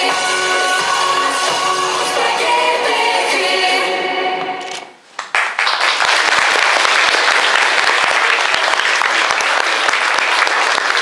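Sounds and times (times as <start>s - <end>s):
audience applause: 5.2s - 11.0s.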